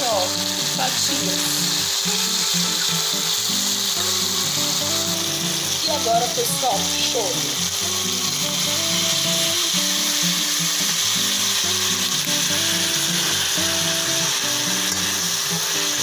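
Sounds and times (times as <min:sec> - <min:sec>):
background music: 0:00.0 - 0:16.0
meat sizzling in oil: 0:00.0 - 0:16.0.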